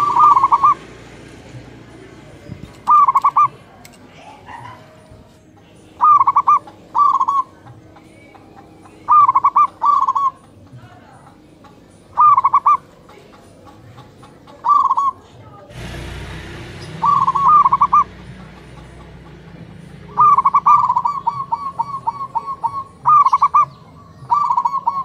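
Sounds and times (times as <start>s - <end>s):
dove cooing: 0.0s - 25.0s
steady rushing noise: 15.7s - 21.2s.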